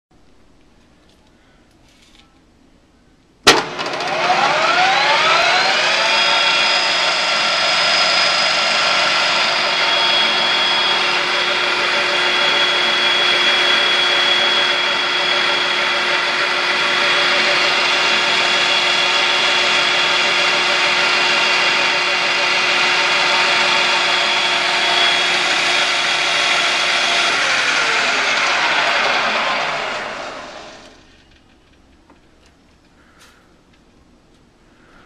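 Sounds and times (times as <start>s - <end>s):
metal lathe whine: 3.7s - 31.4s.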